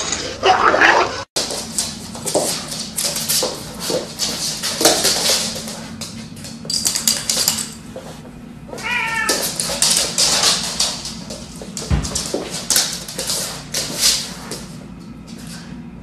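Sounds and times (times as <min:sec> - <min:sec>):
paws skittering on wooden floor: 0:01.4 - 0:15.8
cat meowing: 0:08.8 - 0:09.4.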